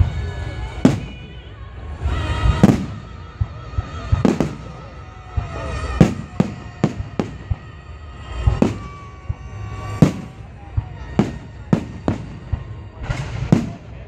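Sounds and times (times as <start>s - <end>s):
music playing: 0.0s - 14.0s.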